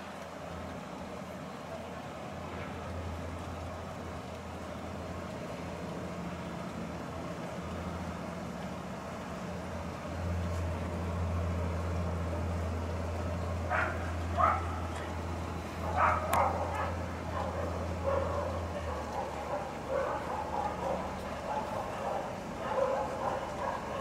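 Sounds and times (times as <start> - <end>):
low mechanical hum: 0.0 - 24.0
dog barking: 13.7 - 14.8, 15.9 - 24.0.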